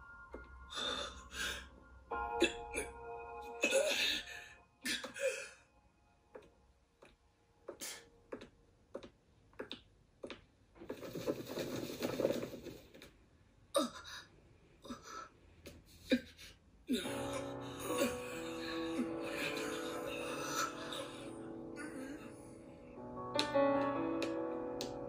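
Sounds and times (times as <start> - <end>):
quiet background music: 0.0 - 9.6, 15.9 - 25.0.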